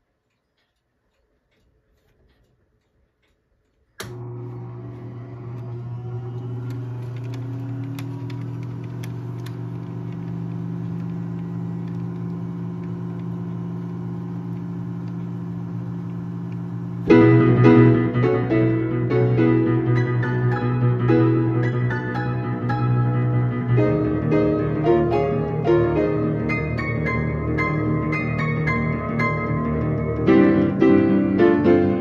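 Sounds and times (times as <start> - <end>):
vacuum pump hum: 4.0 - 32.0
piano playing notes: 17.0 - 32.0.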